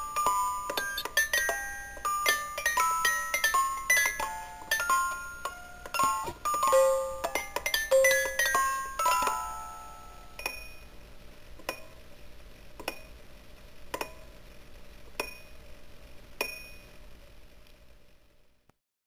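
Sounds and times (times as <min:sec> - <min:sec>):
music box plucked notes: 0:00.0 - 0:10.8.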